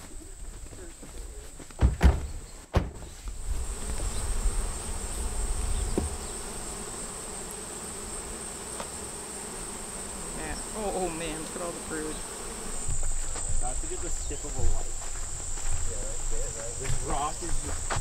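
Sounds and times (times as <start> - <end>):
honeybees buzzing: 0.0 - 18.0
sharp thumps: 1.7 - 3.4, 5.8 - 6.3.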